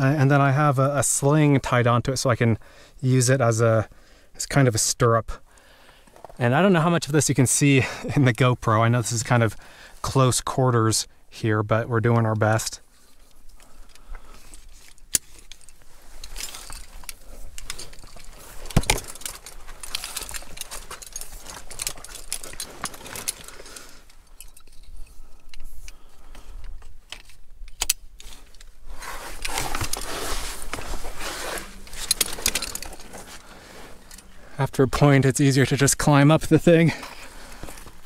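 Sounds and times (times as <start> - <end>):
metal climbing hardware clinking: 13.0 - 34.6, 36.5 - 38.0.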